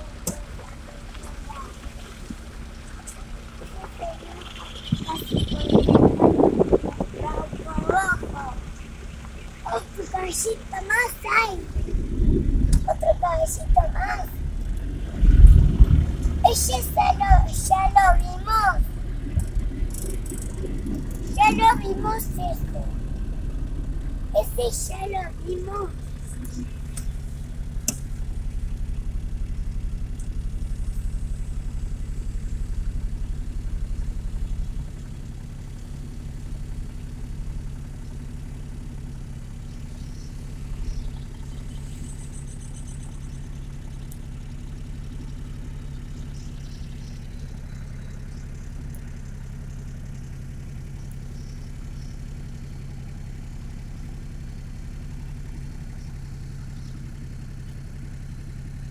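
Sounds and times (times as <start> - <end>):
car engine idling: 0.0 - 58.9
faint high chirps: 3.9 - 6.0.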